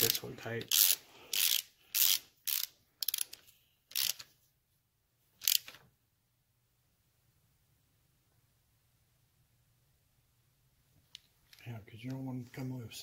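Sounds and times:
hand ratchet clicking: 0.0s - 4.2s, 5.4s - 5.7s.

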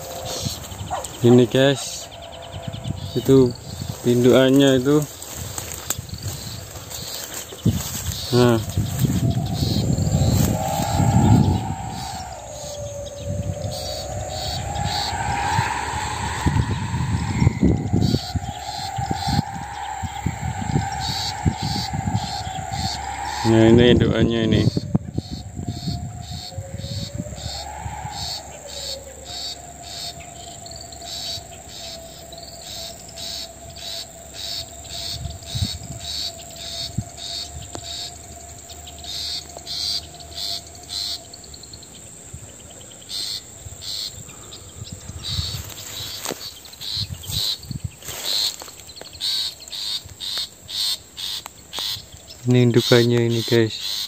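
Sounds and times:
insects chirping: 0.0s - 54.0s
thin steady tone: 8.3s - 33.6s.

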